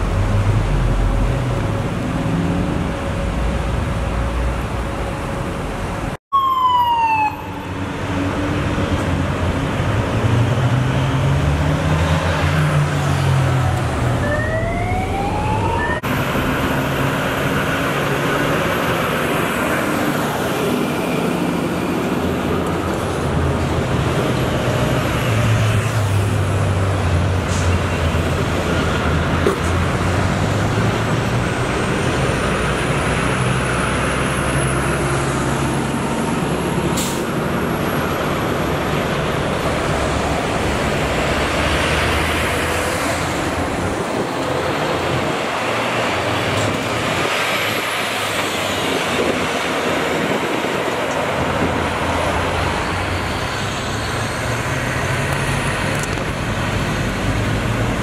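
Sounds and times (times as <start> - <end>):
diesel trucks rumbling past: 0.0 - 58.0
police siren whoops: 6.3 - 7.8, 14.1 - 16.1.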